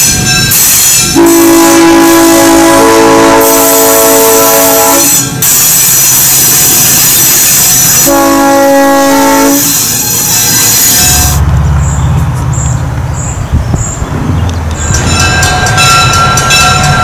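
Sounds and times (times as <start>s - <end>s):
locomotive air horn: 1.1s - 5.3s, 7.8s - 10.0s
train wheels rolling: 4.6s - 17.0s.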